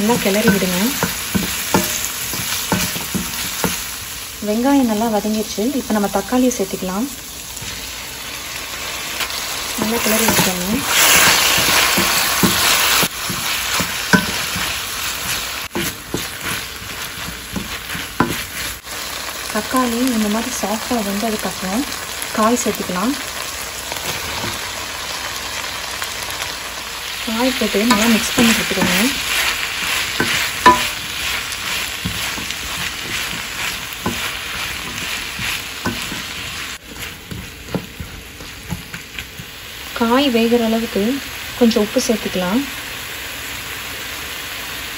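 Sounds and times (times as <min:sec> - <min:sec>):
wooden spatula knocking pan: 0:00.0 - 0:03.9, 0:09.8 - 0:18.6, 0:27.4 - 0:39.6
vegetables sizzling in oil: 0:00.0 - 0:44.9
spatula knocking against pan: 0:30.2 - 0:31.0.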